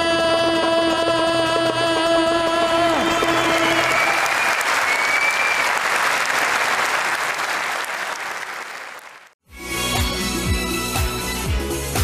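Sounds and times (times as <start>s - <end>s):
studio audience applauding: 2.4s - 9.4s.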